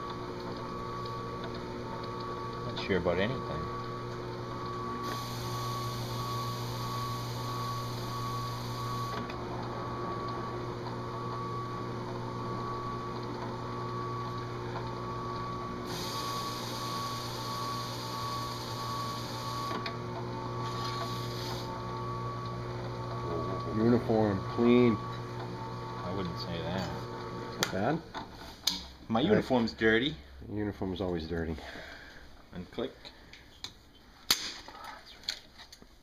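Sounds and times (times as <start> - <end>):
drill press motor humming: 0.0 - 28.4
abrasive grinding hiss on metal: 5.0 - 6.9, 15.9 - 19.5.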